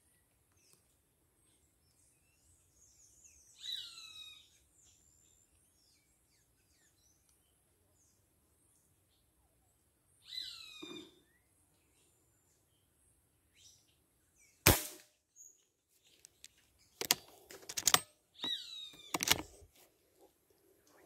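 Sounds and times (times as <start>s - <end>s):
bird calling: 3.6s - 4.6s, 10.2s - 11.5s, 18.4s - 19.6s
air rifle shot: 14.6s - 15.1s
clicks and knocks: 17.0s - 18.1s, 19.1s - 19.5s.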